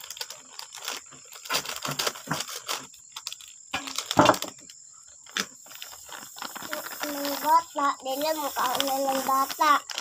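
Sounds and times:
scissors cutting plastic: 0.0 - 4.4
plastic packet crinkling: 0.0 - 10.0.

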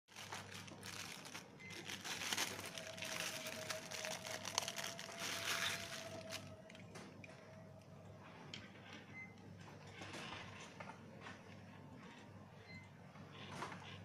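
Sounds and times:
plastic bag crinkling: 0.1 - 6.8.

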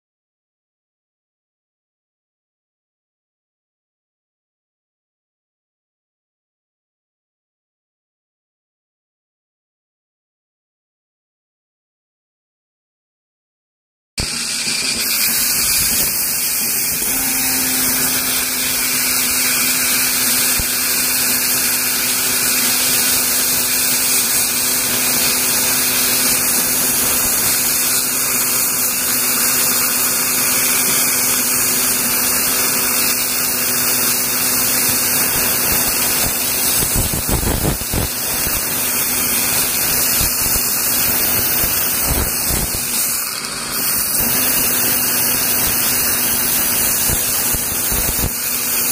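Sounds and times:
dental air polisher hissing: 14.2 - 48.9.

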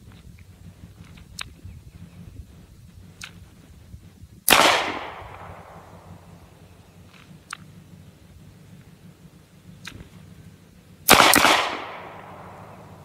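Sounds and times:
faint clicks: 0.1 - 1.6, 7.0 - 7.8, 9.8 - 10.2
pistol shot with echo: 4.5 - 6.3, 11.1 - 13.0.

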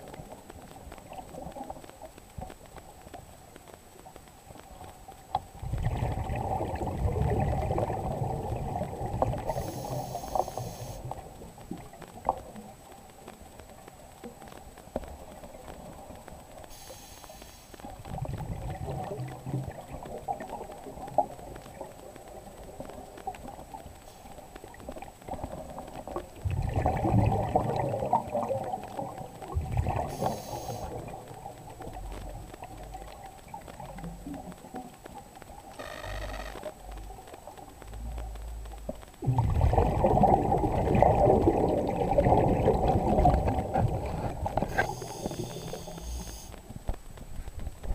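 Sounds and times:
exhaled bubbles burbling: 5.6 - 12.8, 17.9 - 23.6, 24.7 - 34.9, 38.8 - 46.4
hissing regulator inhalations: 30.1 - 30.9, 44.7 - 46.5.

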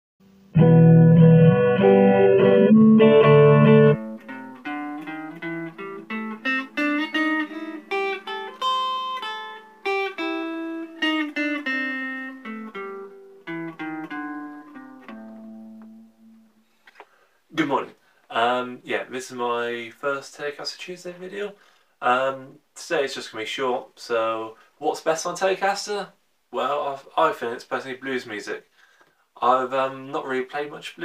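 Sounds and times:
electric guitar blues riff: 0.4 - 16.8
sustained chords sting: 0.6 - 4.2.

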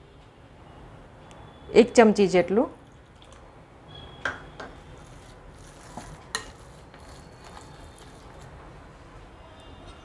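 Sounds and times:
spatula stirring mix in glass bowl: 4.7 - 8.6.

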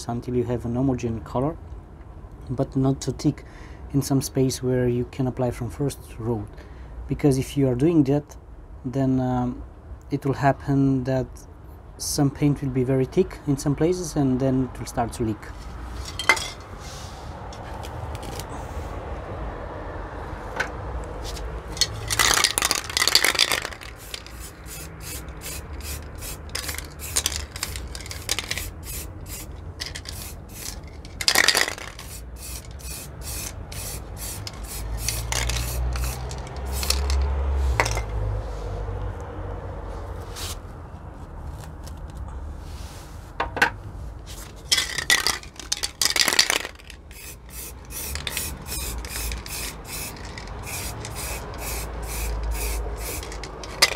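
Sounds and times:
spray can hissing: 22.2 - 37.2, 47.1 - 53.9.

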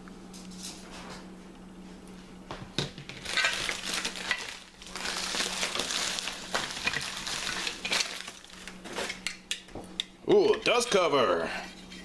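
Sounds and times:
packing wrap crackling: 3.0 - 9.2.

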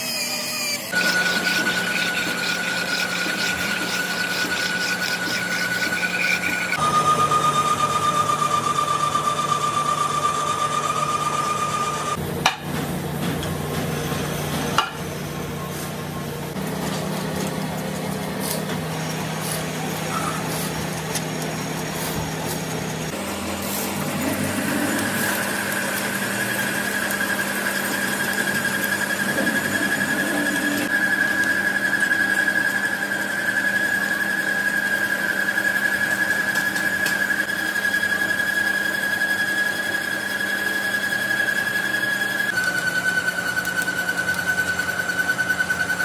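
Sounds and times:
machine tool motor hum: 0.0 - 12.2, 16.4 - 32.0
high cutting whine: 0.0 - 12.6, 16.5 - 38.4.

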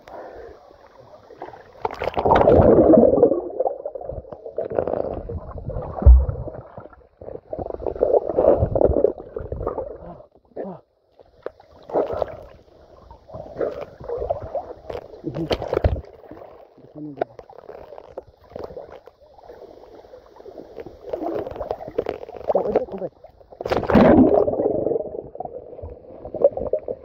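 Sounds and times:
river water sloshing and gurgling: 11.6 - 26.9.

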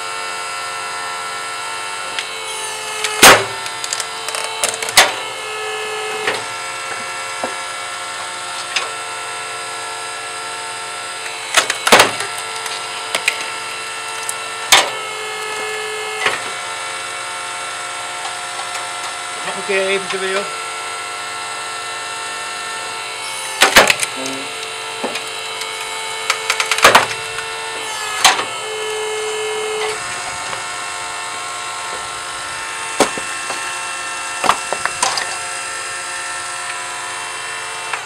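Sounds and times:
log splitter humming: 0.0 - 38.0
wood cracking: 3.0 - 5.1, 11.5 - 14.9, 23.6 - 29.0.

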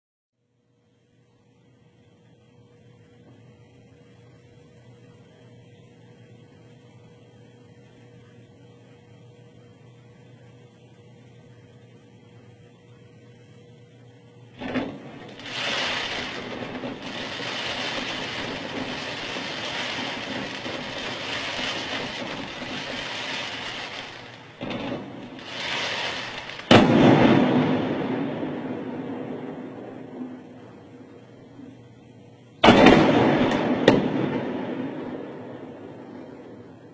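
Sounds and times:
sharp blast: 14.6 - 31.2
explosive bang: 14.6 - 31.3, 32.6 - 36.9.

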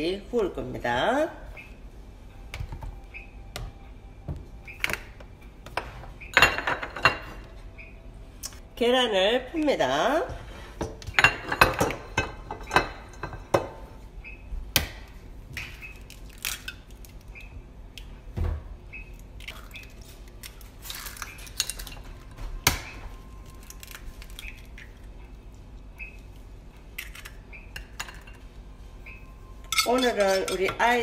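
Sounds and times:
eggs cracking: 14.8 - 18.1, 19.1 - 28.4.

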